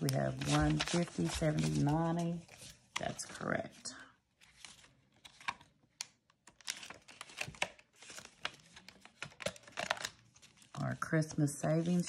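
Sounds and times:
paper bills rustling and crinkling: 0.0 - 3.4, 6.5 - 12.0.

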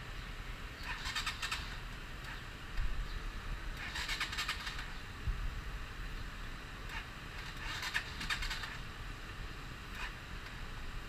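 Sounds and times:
motorcycle engine idling: 0.1 - 11.0
rapid clicking and rattling: 0.9 - 2.4, 3.8 - 4.9, 6.9 - 8.8.

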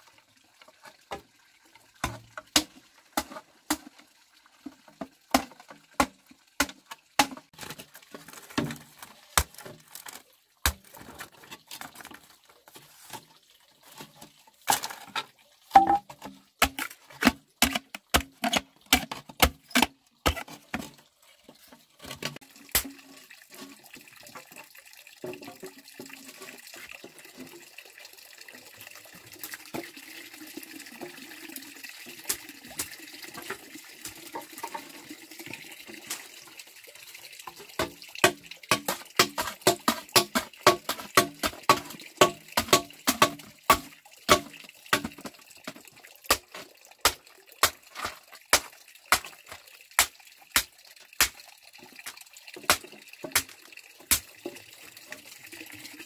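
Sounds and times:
machete chopping bamboo: 5.3 - 7.4, 9.4 - 10.0, 16.6 - 20.4, 37.8 - 45.2, 47.1 - 51.4, 52.7 - 54.3.

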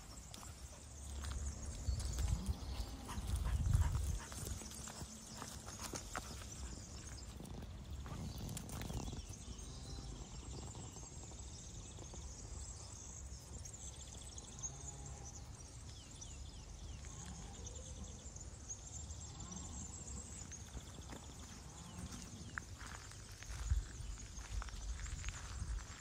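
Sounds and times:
faint bird chirps and trills: 0.0 - 26.0
wind rumble on microphone: 1.4 - 5.1, 5.8 - 13.7, 20.4 - 26.0.

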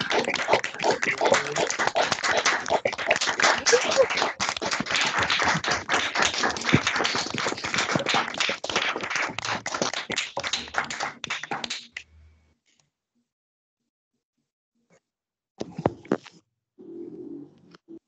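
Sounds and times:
people clapping: 0.0 - 12.0.

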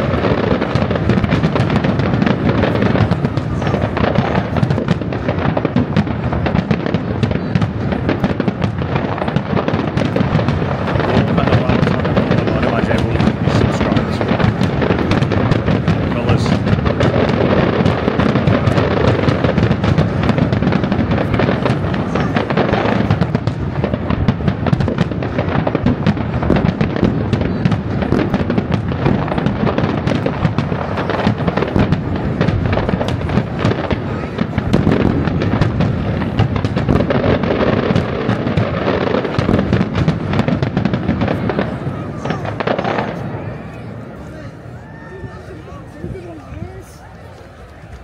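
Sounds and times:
firework bursts and crackling: 0.0 - 48.0.

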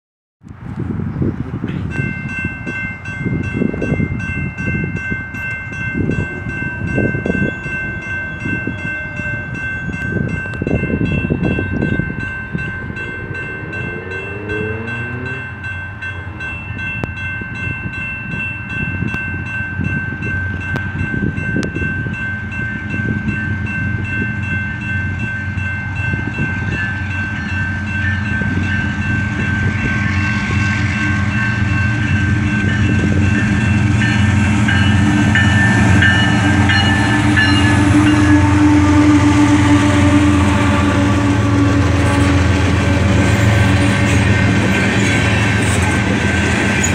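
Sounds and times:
wind buffeting the microphone: 0.4 - 14.1, 16.2 - 39.7
diesel locomotive engine drone: 0.4 - 46.9
crossing warning bell ringing: 1.6 - 46.9.

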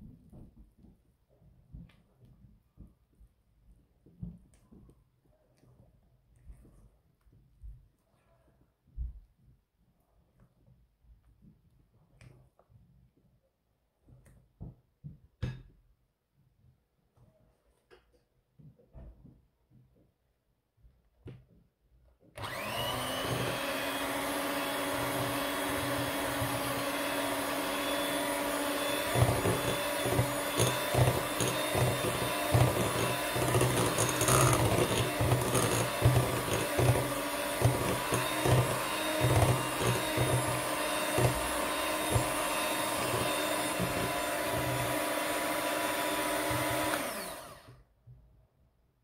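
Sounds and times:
electric hand mixer whining: 22.4 - 47.8.

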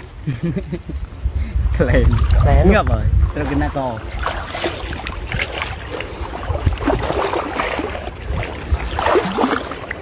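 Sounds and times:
wading through water splashing: 3.2 - 10.0.

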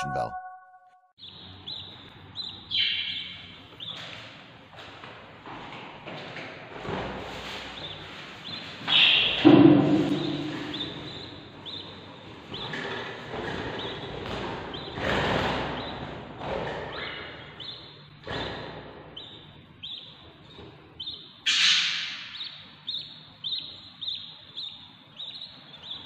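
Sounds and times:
bird chicks cheeping: 1.2 - 4.3, 7.3 - 26.0.

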